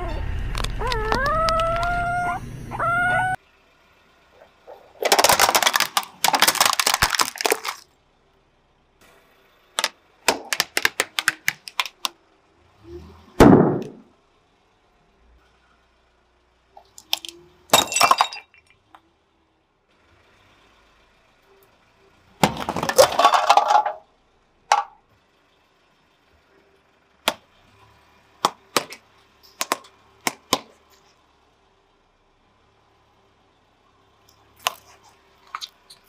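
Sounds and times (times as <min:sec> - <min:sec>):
objects cracking under tyre: 0:04.7 - 0:07.9, 0:09.8 - 0:12.2, 0:22.4 - 0:24.1, 0:28.4 - 0:31.0, 0:34.3 - 0:36.0.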